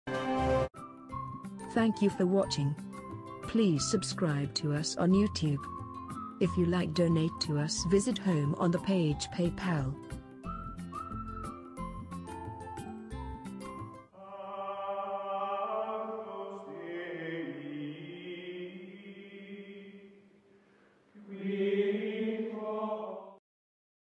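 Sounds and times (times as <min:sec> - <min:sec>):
choir-like chanted chord: 0:14.1 - 0:20.1, 0:21.2 - 0:23.4.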